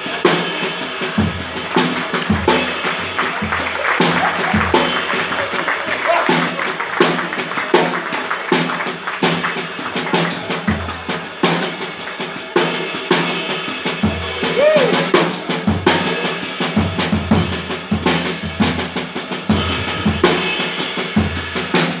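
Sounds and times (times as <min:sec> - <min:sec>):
jazz drum kit playing: 0:00.0 - 0:22.0.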